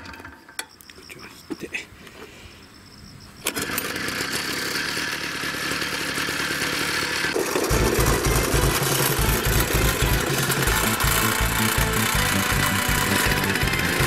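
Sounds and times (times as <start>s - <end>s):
small engine pull-started and running: 0.0s - 0.6s, 3.4s - 14.0s
background music with a beat: 8.6s - 14.0s.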